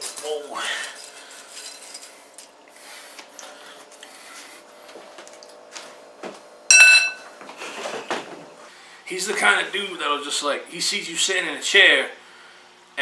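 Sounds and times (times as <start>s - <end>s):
low steady hum: 6.6s - 7.4s
loud high-pitched ring: 6.7s - 7.3s.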